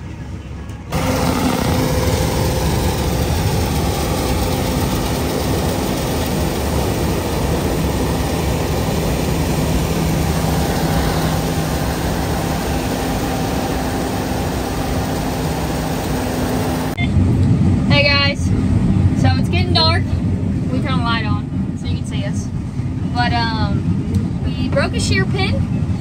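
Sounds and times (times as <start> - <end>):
combine harvester droning: 0.6 - 19.6.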